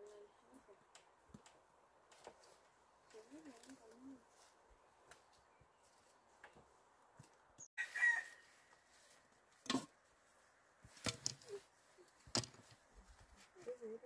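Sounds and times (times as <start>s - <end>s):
chicken calling: 7.8s - 8.4s.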